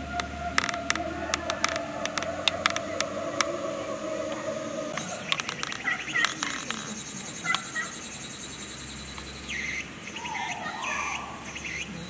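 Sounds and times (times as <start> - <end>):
birds chirping: 0.0 - 12.0
insects trilling: 0.0 - 12.0.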